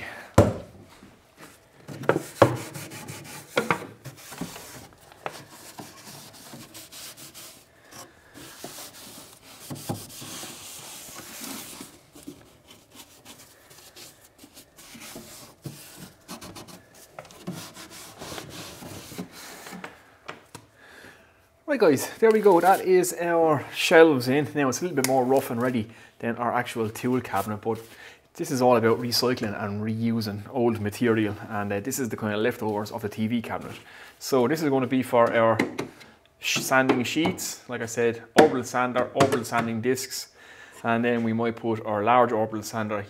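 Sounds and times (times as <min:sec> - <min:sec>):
wood scraping on wood: 0:01.4 - 0:19.9.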